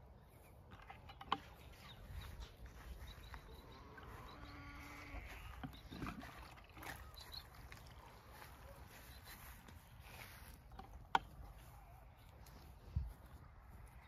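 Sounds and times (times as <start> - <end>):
drawn-out animal call: 3.1 - 8.4.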